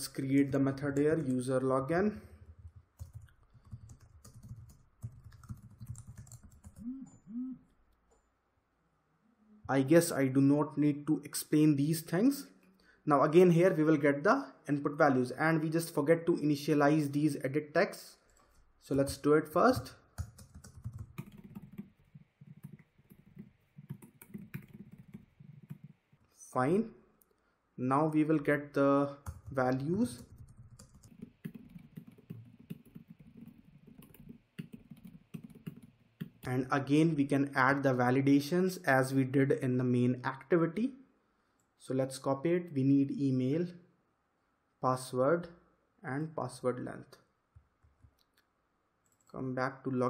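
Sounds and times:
typing on keyboard: 2.4 - 7.2, 18.9 - 26.1, 29.2 - 36.5.

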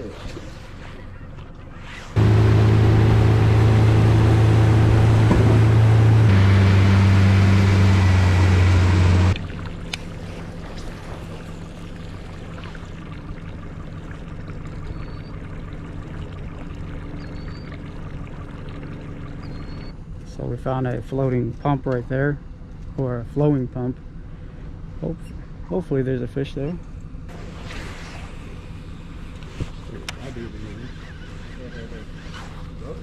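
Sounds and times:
rushing water noise: 2.2 - 9.5
boat motor running: 2.2 - 20.1
low hum: 2.2 - 33.0.

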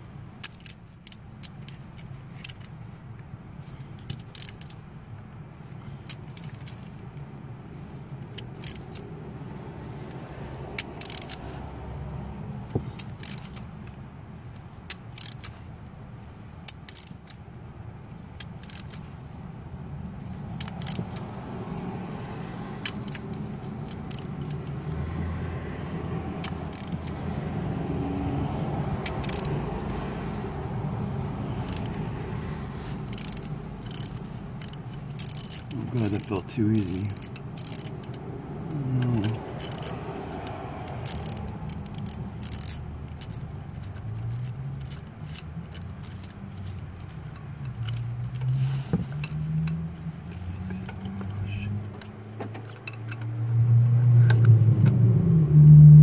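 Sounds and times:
metallic wrench clicks: 0.4 - 3.0, 3.6 - 4.9, 5.6 - 7.2, 7.8 - 9.2, 9.9 - 11.7, 12.6 - 17.4, 18.1 - 19.2, 20.2 - 21.4, 22.8 - 24.9, 25.8 - 27.2, 28.8 - 29.6, 31.5 - 53.6, 54.2 - 54.9.

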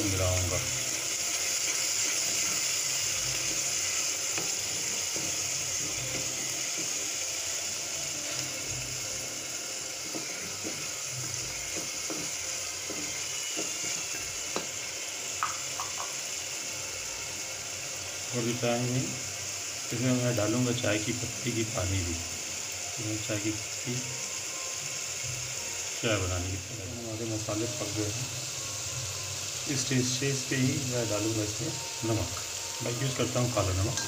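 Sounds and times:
food sizzling in hot oil: 0.0 - 34.0
wooden spatula scraping pot: 10.0 - 14.2.

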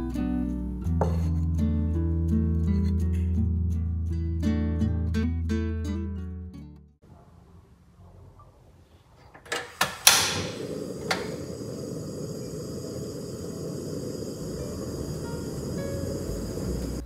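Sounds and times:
gas flame rushing: 9.5 - 17.0
gas stove igniter clicks: 9.5 - 17.0.

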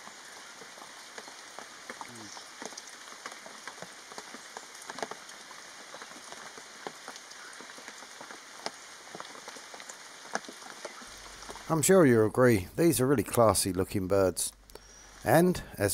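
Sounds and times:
heavy rain pouring: 0.0 - 15.9.

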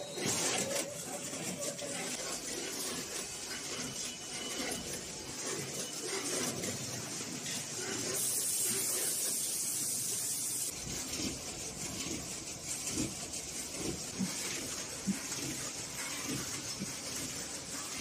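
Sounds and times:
packaging machinery hiss: 8.1 - 10.7.

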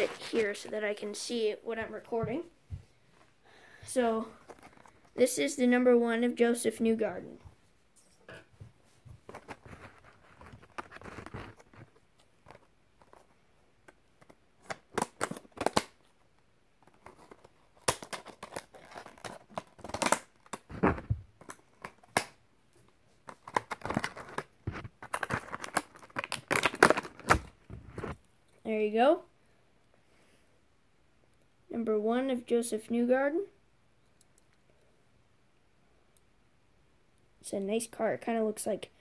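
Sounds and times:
plastic packaging crinkling: 9.3 - 13.3, 16.8 - 22.4, 23.2 - 28.2
plastic and card snapping: 13.8 - 16.1, 16.8 - 22.4, 23.3 - 28.2.

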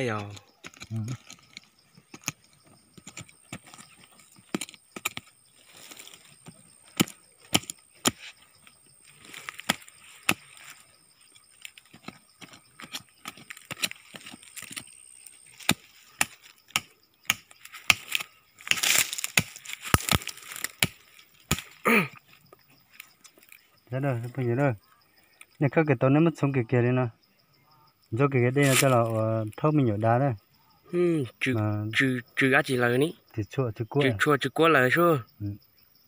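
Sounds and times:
metal blade chopping soil and roots: 0.0 - 21.8.

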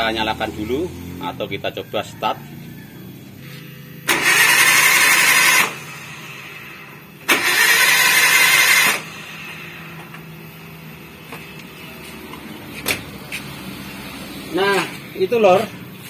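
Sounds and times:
whining engine spin: 0.0 - 16.0
starter motor cranking engine: 4.0 - 6.0, 7.2 - 9.2.

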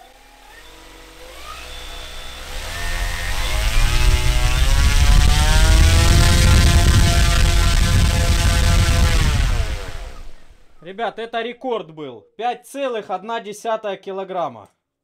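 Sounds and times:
electric motor whine: 0.0 - 10.7
propeller air rush: 2.6 - 10.7.

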